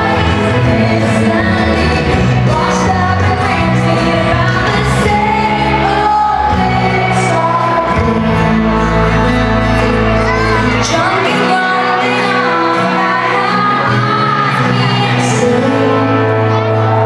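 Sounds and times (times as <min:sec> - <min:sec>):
live band playing: 0:00.0 - 0:17.0
woman singing lead: 0:00.0 - 0:17.0.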